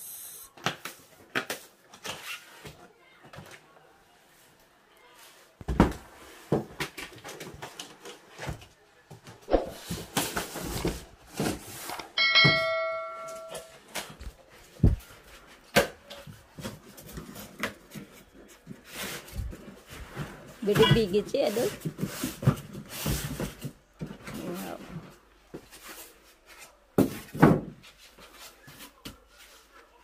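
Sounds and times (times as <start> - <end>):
bell-like electronic chime: 12.2 - 13.7.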